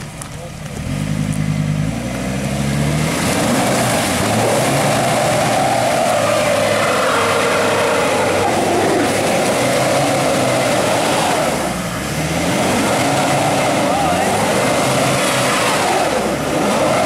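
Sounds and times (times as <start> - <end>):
engine revving hard: 0.8 - 17.0.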